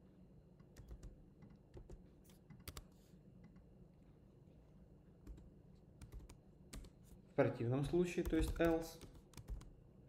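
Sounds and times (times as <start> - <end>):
faint keyboard typing: 0.6 - 3.7, 5.2 - 7.2, 7.8 - 9.8.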